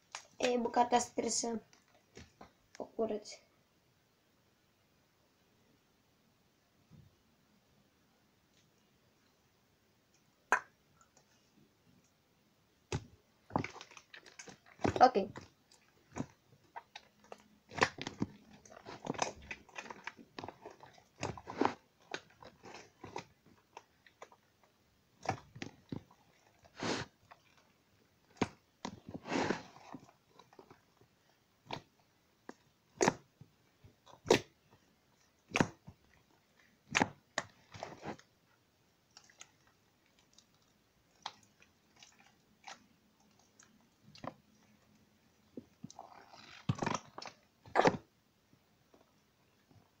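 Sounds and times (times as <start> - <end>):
wet slime squishing: 12.8 - 48.2
slime popping: 12.9 - 24.4.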